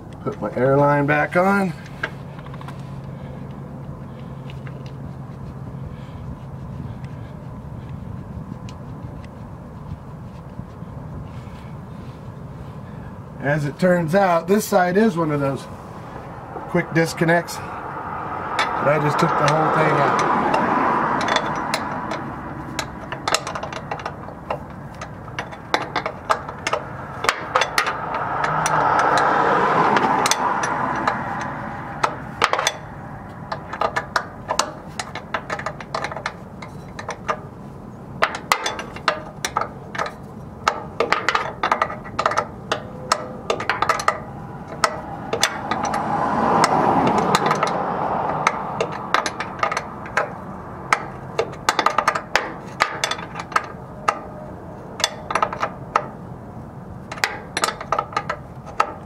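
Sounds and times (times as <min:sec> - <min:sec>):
rushing noise: 0:15.2 - 0:24.3, 0:24.9 - 0:37.1, 0:42.0 - 0:51.8
tools clicking and clinking on metal: 0:18.5 - 0:29.4, 0:30.0 - 0:37.6, 0:38.2 - 0:59.0.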